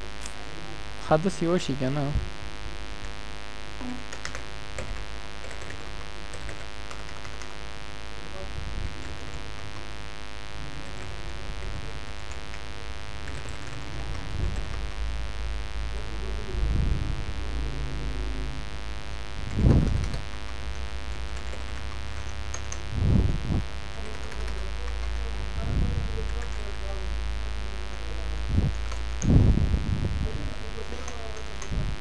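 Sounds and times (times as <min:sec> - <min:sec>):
electrical hum and buzz: 0:00.0 - 0:32.0
keyboard typing clicks: 0:03.8 - 0:07.6, 0:10.8 - 0:15.0, 0:19.5 - 0:22.9, 0:23.9 - 0:25.4, 0:30.9 - 0:31.7.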